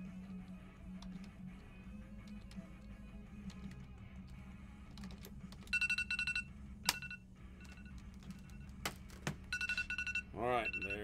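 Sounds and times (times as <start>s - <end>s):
faint background music: 0.0s - 11.0s
electronic timer beeping: 5.7s - 8.7s, 9.5s - 11.0s.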